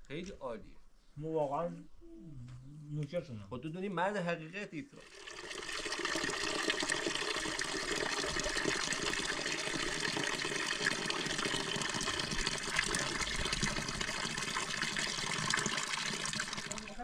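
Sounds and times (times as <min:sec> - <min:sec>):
water pouring into metal bowl: 0:05.0 - 0:17.0.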